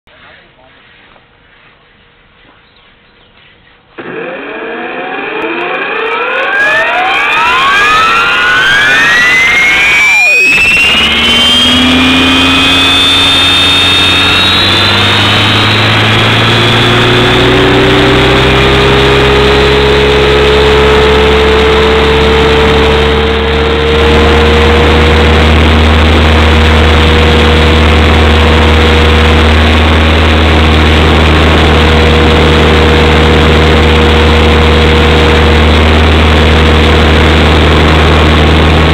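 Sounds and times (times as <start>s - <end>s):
drone motors whining: 4.0s - 38.9s.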